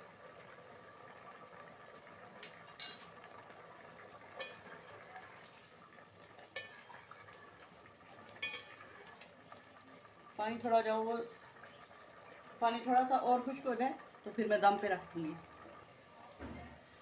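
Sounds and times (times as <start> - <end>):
low hiss from simmering pot: 0.0 - 17.0
utensil clinking against metal pot: 2.4 - 3.1, 4.4 - 4.9, 6.5 - 7.2, 8.4 - 8.8.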